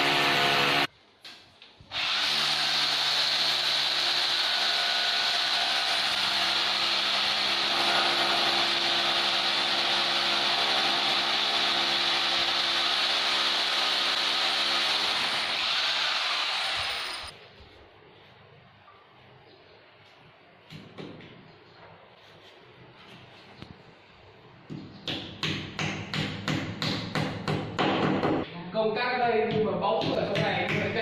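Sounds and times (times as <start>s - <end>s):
electric drill boring into wall: 0.0s - 0.9s, 1.9s - 17.3s.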